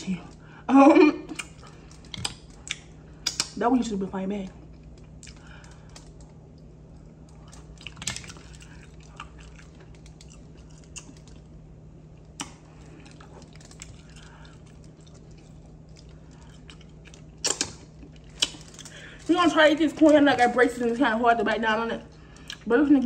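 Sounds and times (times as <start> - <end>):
steady low hum: 0.0 - 23.0
person chewing: 1.2 - 3.6, 4.6 - 19.3, 22.2 - 22.7.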